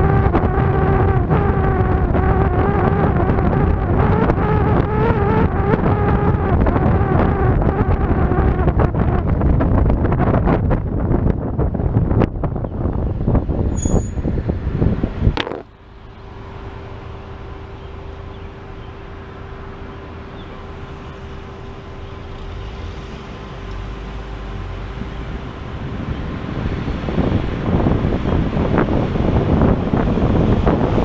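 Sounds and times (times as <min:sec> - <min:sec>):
wind buffeting microphone: 0:00.0 - 0:16.0, 0:22.8 - 0:31.0
low rumble of vehicle noise: 0:00.0 - 0:31.0
camera cracking onto road: 0:15.3 - 0:15.7.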